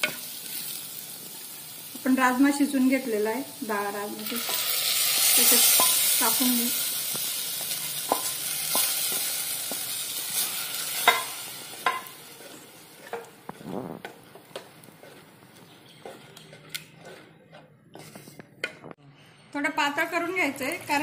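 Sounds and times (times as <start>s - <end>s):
beans sizzling in hot pot: 0.0s - 15.5s
wooden spatula knocking on clay pot: 11.0s - 12.1s.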